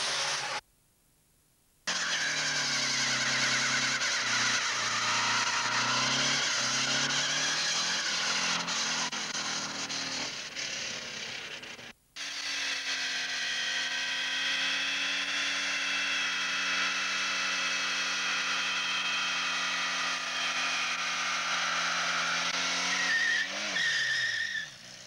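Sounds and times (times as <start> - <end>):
tyres squealing: 1.9 - 9.8, 22.8 - 24.8
car engine revving high: 1.9 - 24.2.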